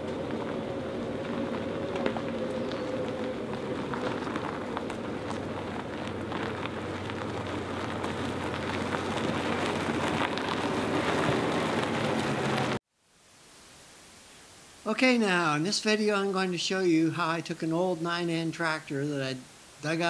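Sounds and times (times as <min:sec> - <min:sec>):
low electric drive hum: 0:00.0 - 0:12.2
tyres crunching on gravel: 0:00.0 - 0:12.8.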